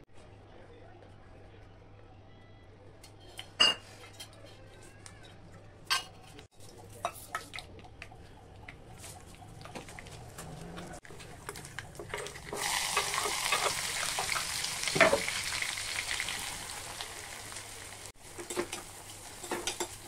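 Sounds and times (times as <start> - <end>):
seeds sizzling in hot oil: 11.4 - 20.0
steel cookware clinking: 12.0 - 15.6, 18.3 - 20.0.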